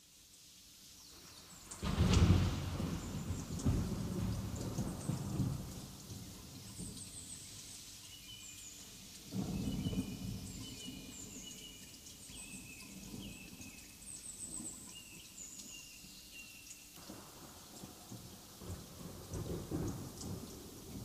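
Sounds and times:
rain hiss: 0:00.0 - 0:21.0
low roll of thunder: 0:01.8 - 0:07.0, 0:09.3 - 0:11.4, 0:17.0 - 0:21.0.

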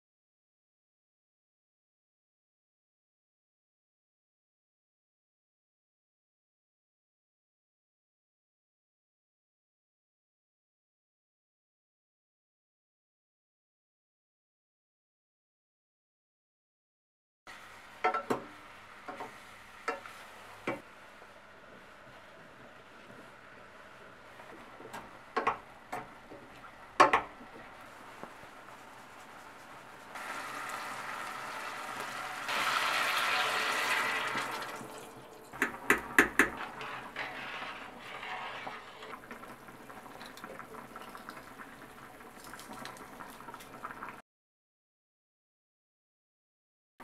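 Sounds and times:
quiet kitchen sounds: 0:17.5 - 0:44.2
spoon knocking against pot: 0:27.0 - 0:27.3, 0:35.6 - 0:36.6
water pouring into pot: 0:30.1 - 0:44.2
wooden spoon stirring in metal pot: 0:35.6 - 0:39.6.

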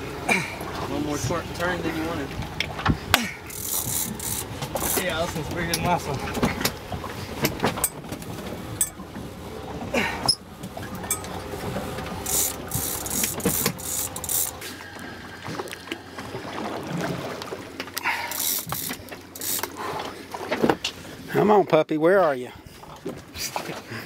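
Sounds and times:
steady low hum: 0:00.0 - 0:21.3
fishing reel clicks and knocks: 0:03.5 - 0:05.1, 0:12.2 - 0:14.6, 0:18.3 - 0:19.8.

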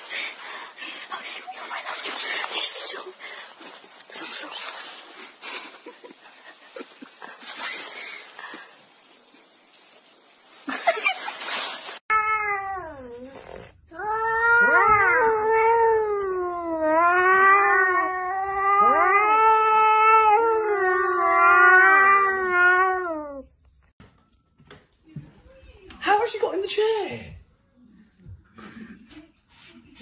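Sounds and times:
scuffling noise: 0:01.6 - 0:12.0
cat yowling: 0:14.0 - 0:23.5.

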